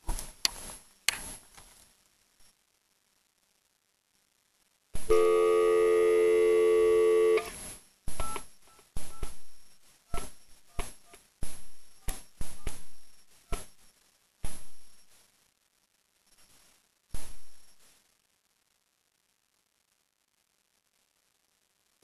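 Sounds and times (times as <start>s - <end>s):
keypad button clicks with beeps: 8.2s - 9.4s.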